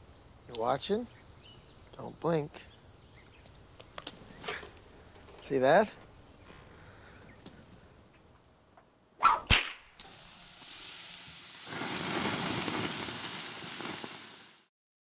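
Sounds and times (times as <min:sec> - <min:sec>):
whip-like swooshes: 0:09.2 - 0:09.9
hissing noise: 0:10.0 - 0:14.7.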